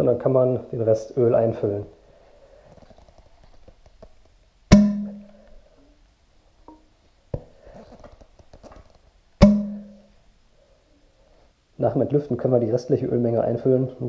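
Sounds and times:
faint clicks and rubbing: 2.6s - 4.4s, 7.3s - 9.2s
sharp knocks from fork: 4.7s - 5.4s, 9.4s - 10.0s.

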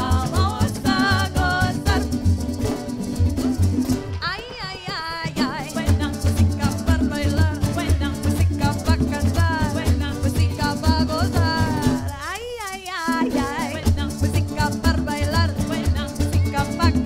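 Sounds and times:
voices singing: 0.0s - 2.4s, 4.9s - 17.0s
bass line: 0.0s - 4.2s, 5.7s - 12.1s
strummed acoustic guitar: 0.0s - 12.4s, 13.1s - 17.0s
maracas shaking: 0.0s - 17.0s.

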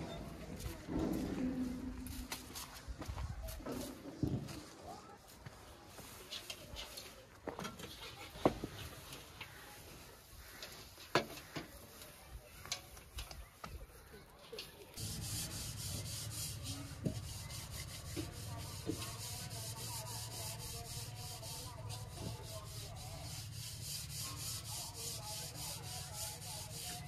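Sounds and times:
rhythmic scraping strokes: 15.0s - 27.0s.

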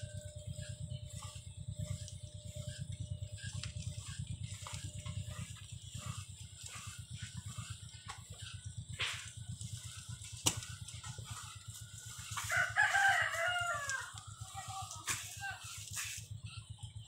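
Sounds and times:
potter's wheel rumbling: 0.0s - 17.0s
rooster crowing: 12.0s - 14.8s.

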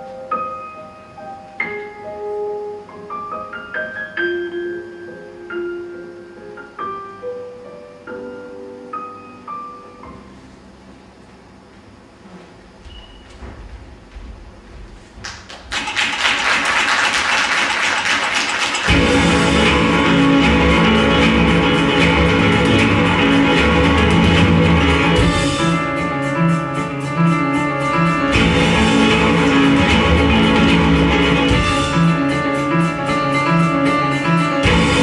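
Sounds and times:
dance music: 17.8s - 35.0s
heavy bass: 18.9s - 35.0s.

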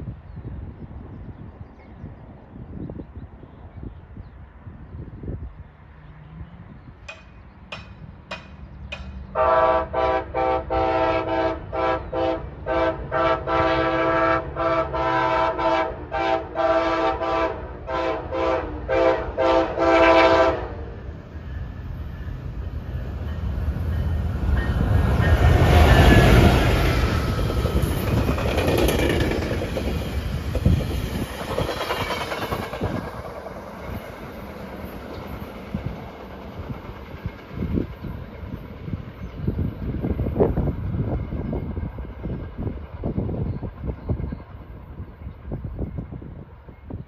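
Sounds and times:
train rumbling: 0.0s - 47.0s
train air horn blasts: 9.3s - 21.0s.

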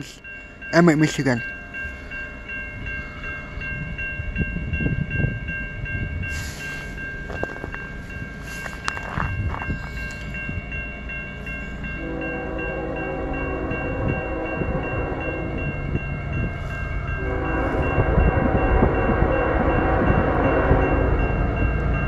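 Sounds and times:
crossing bell ringing: 0.0s - 22.0s
freight train rumble: 0.0s - 22.0s
locomotive horn: 12.0s - 15.6s, 17.2s - 21.2s.

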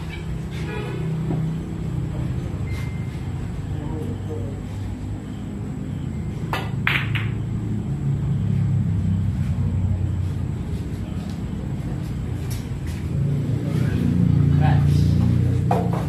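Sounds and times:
cue striking ball: 6.5s - 7.4s
pool balls clacking: 6.5s - 7.5s.

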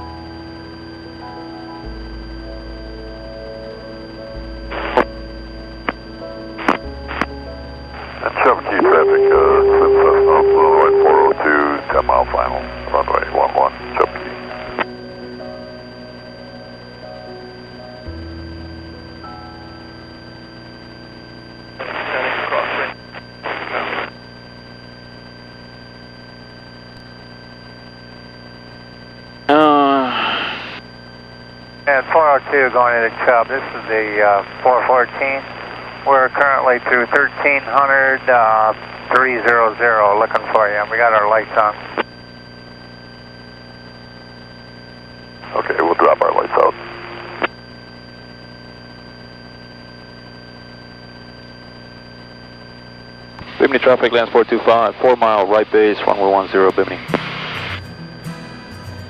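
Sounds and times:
aircraft engine drone: 0.0s - 23.4s
burst of radio noise: 8.0s - 14.8s, 21.8s - 24.2s, 29.5s - 30.8s, 31.9s - 42.1s, 45.4s - 47.5s, 53.4s - 57.8s.

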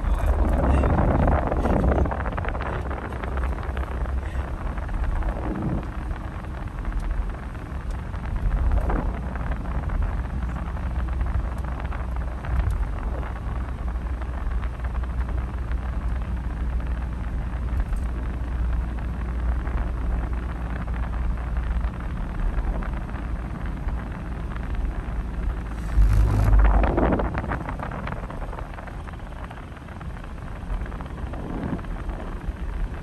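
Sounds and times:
road and tyre noise in car: 0.0s - 33.0s
truck passing: 25.6s - 27.5s.

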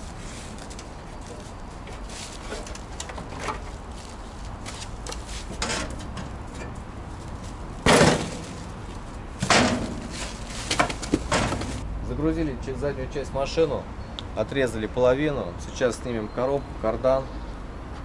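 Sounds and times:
loud metal clank: 7.8s - 8.6s, 9.4s - 10.2s, 11.3s - 11.8s.

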